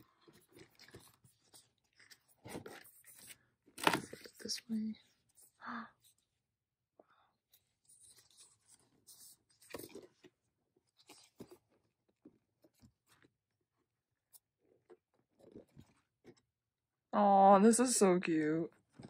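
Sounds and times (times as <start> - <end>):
paper pages rustling: 0.1 - 5.5, 7.6 - 13.6.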